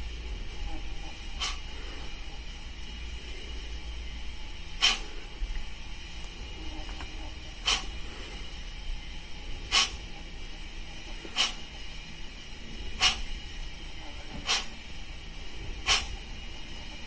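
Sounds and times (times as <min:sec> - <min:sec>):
short steam hisses from small speaker: 0:14.4 - 0:14.8.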